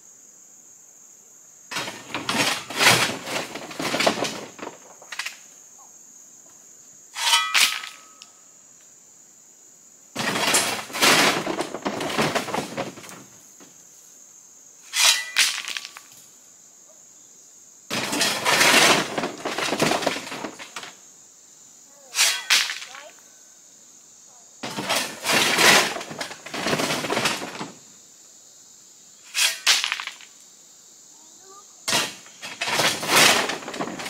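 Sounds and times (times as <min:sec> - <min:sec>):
shovel scraping into rock: 0:07.2 - 0:08.2, 0:14.9 - 0:16.0, 0:22.1 - 0:22.9, 0:29.3 - 0:30.2
loose rock sliding and pouring: 0:10.2 - 0:13.3, 0:31.9 - 0:34.0.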